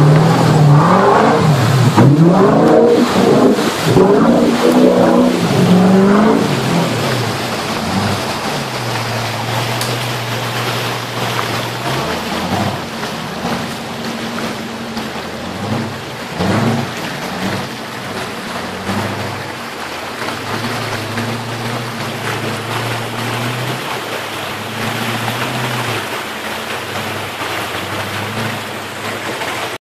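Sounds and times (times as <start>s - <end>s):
buggy engine revving: 0.0s - 29.8s
river water rushing: 0.0s - 29.8s.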